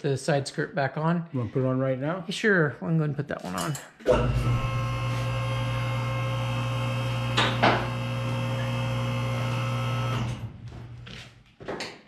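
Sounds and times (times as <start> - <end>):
hydraulic pump motor humming: 4.1 - 11.1.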